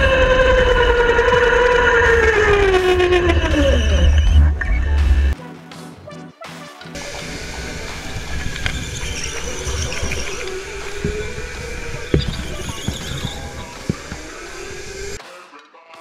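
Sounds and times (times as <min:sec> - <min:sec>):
go-kart engine whine: 0:00.0 - 0:05.4, 0:07.0 - 0:15.2
tyre noise: 0:07.0 - 0:15.2.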